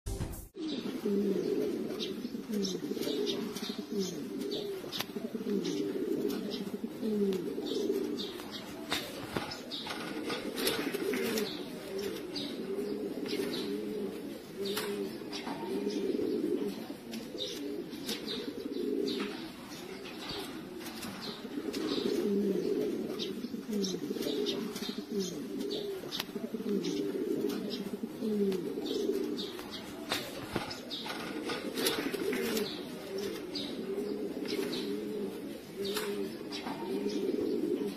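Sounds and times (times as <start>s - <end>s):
pigeons cooing: 0.6s - 37.9s.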